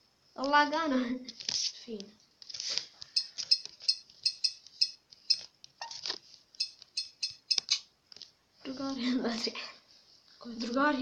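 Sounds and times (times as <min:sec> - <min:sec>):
on-screen keyboard clicks: 0:06.6 - 0:07.8.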